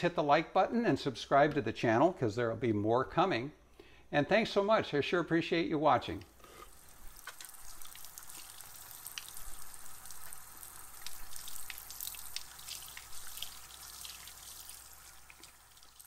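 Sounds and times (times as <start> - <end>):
hands lathering soap: 6.4 - 16.0
faucet water running into sink: 6.6 - 16.0
water splashing and dripping: 6.8 - 16.0.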